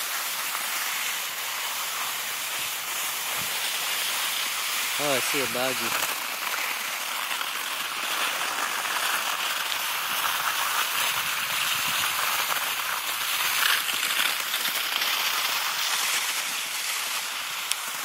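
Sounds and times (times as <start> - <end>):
skis sliding over snow: 0.0 - 18.0.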